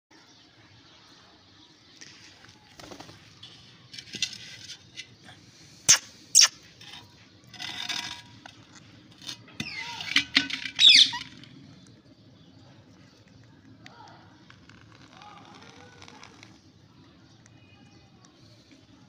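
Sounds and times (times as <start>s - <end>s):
parakeets squawking and chirping: 5.8s - 6.7s, 9.6s - 11.5s.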